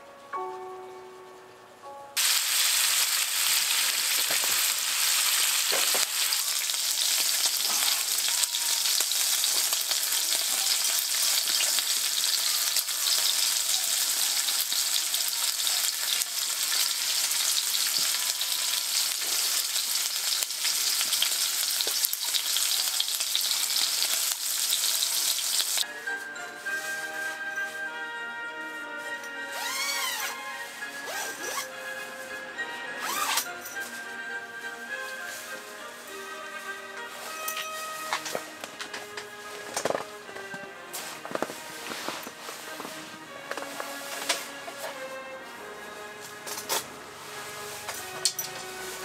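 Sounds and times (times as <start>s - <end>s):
meat sizzling on grill pan: 2.2s - 25.8s.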